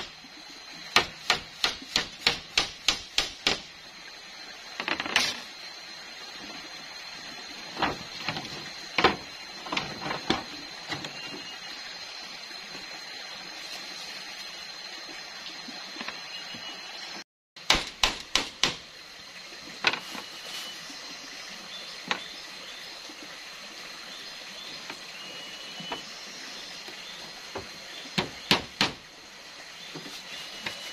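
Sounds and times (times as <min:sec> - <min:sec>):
knocks on bamboo slats: 0:00.9 - 0:03.7, 0:07.7 - 0:11.1, 0:17.6 - 0:18.9, 0:27.5 - 0:29.0.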